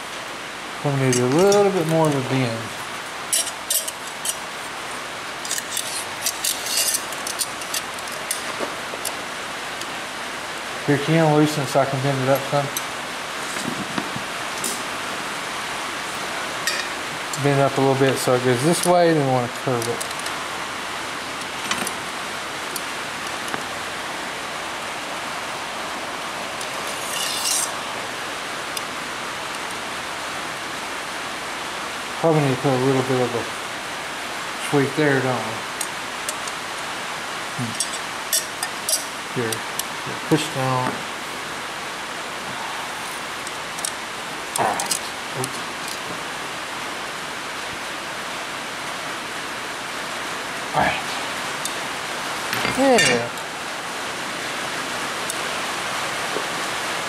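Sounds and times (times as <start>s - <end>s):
rain on a tin roof: 0.0s - 57.0s
high metal scrape: 5.4s - 7.8s, 26.8s - 27.8s.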